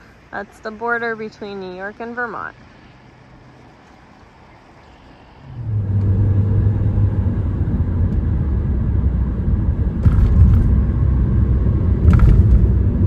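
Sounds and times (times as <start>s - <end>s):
car road noise rumble: 0.0s - 13.0s
brief rustle or rattle: 12.0s - 12.8s.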